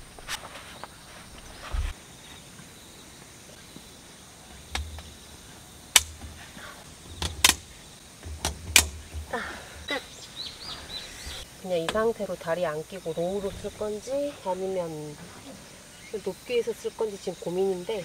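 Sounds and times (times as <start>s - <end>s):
dull handling thumps: 4.5s - 10.0s
metal bars clicking into frame: 7.1s - 9.4s.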